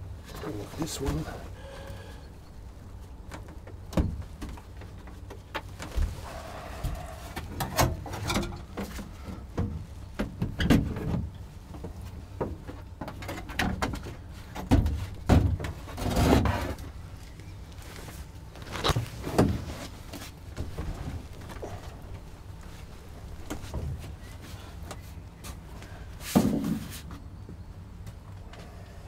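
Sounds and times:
panels knocking and clunking: 7.4s - 16.7s.

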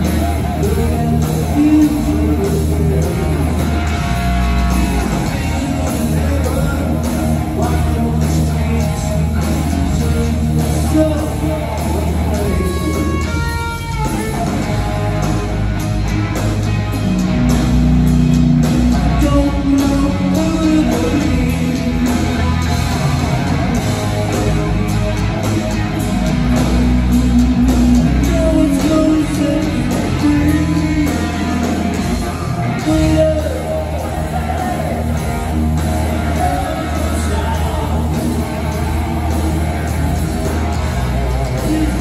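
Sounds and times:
man singing: 0.0s - 14.9s, 19.0s - 22.6s, 26.8s - 39.9s, 41.0s - 42.0s
bass: 0.0s - 42.0s
distorted electric guitars: 0.0s - 42.0s
drums: 0.0s - 42.0s.

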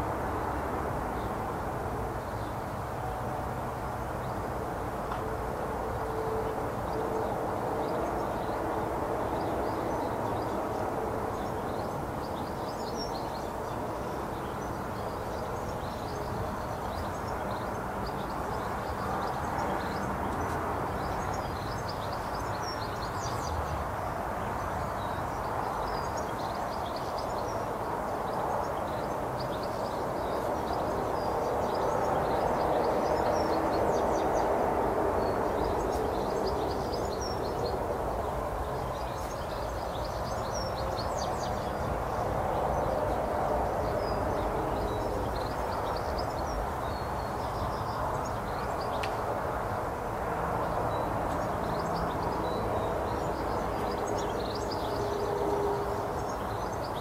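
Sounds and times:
small birds chirping: 50.7s - 57.0s.

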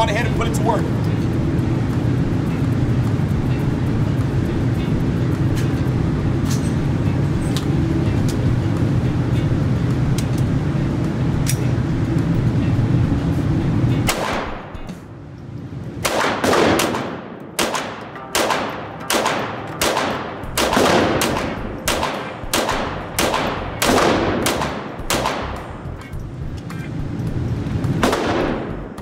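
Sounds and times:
pistol shots echoing indoors: 16.0s - 25.5s.

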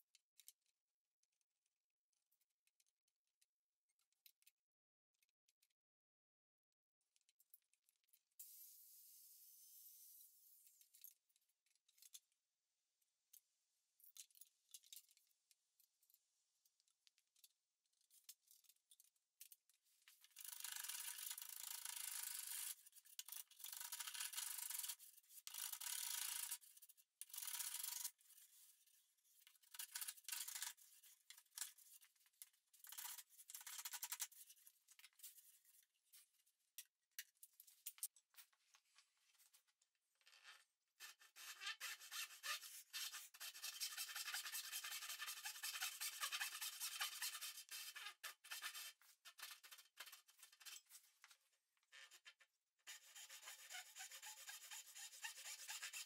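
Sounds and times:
tool rubbing along wooden board: 41.4s - 48.8s, 52.9s - 56.0s.

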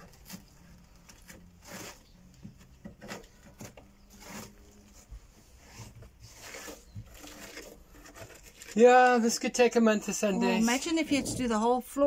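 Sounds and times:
chipboard flooring scraping and crumbling: 0.0s - 9.5s.

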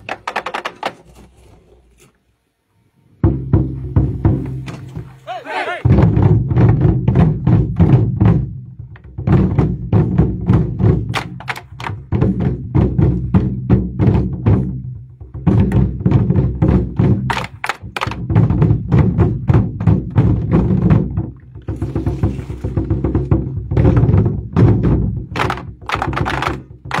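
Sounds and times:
barrel drums ensemble playing: 5.8s - 27.0s.

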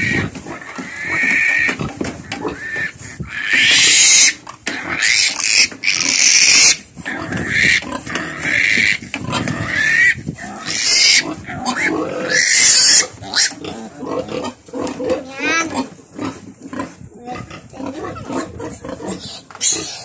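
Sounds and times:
piglet squealing: 2.6s - 6.8s, 9.7s - 13.6s, 15.0s - 15.8s.

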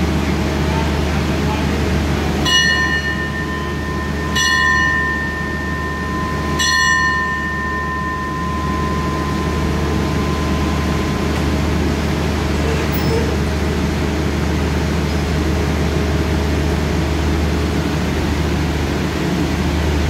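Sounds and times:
low rumble of standing train: 0.0s - 20.0s
bell ringing: 2.4s - 13.2s.

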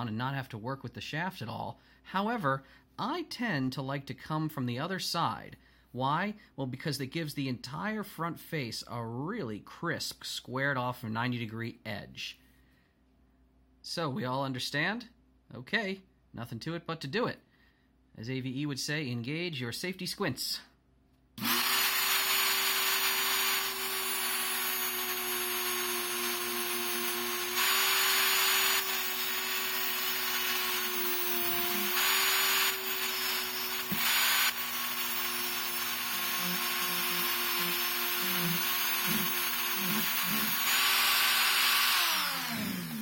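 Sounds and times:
rotary tool grinding metal: 21.4s - 43.0s.

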